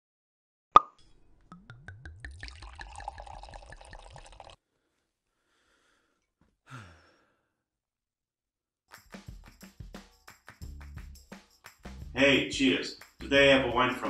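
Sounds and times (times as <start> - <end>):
liquid gurgling: 1.5 - 4.6.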